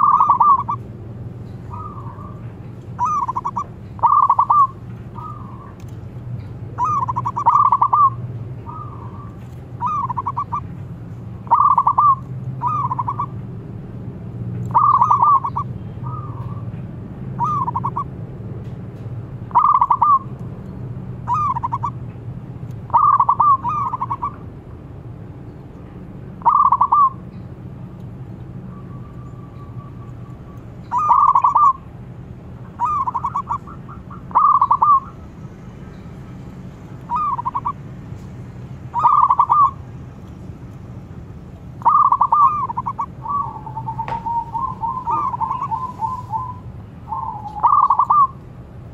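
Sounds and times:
fainter doves cooing: 0.0 - 0.8, 1.7 - 5.9, 6.8 - 10.7, 11.4 - 13.3, 14.7 - 16.6, 17.4 - 18.1, 19.5 - 20.2, 21.3 - 22.0, 22.9 - 24.4, 26.4 - 27.2, 30.8 - 31.8, 32.8 - 35.2, 37.1 - 37.8, 38.9 - 39.8, 41.8 - 48.4
doves cooing with trilled coos: 0.0 - 10.8, 11.4 - 13.4, 14.7 - 18.2, 19.5 - 20.4, 21.2 - 22.1, 22.8 - 24.5, 26.4 - 27.3, 28.7 - 31.9, 32.6 - 35.4, 37.1 - 37.8, 38.9 - 39.8, 41.8 - 48.4.

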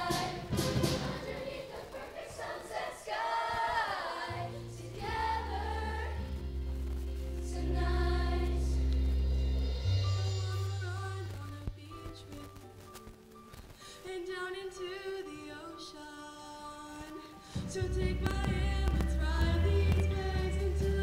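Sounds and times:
choir singing: 0.0 - 6.6, 7.3 - 9.6
low bass notes: 4.5 - 11.6.

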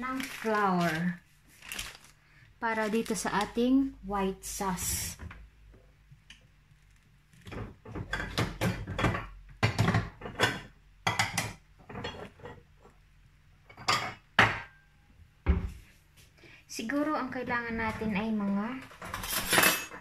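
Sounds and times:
kitchen things clattering: 7.5 - 13.0, 18.8 - 20.0.

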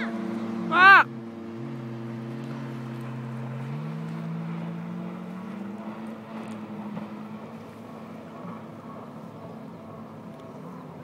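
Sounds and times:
jet ski engine drone: 0.0 - 11.0.

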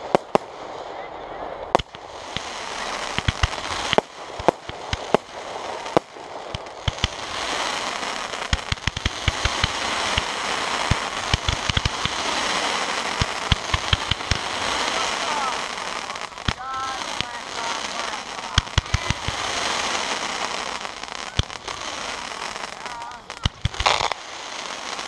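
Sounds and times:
fireworks crackling with pops: 0.0 - 25.0
firework shell bursts: 1.7 - 25.0.

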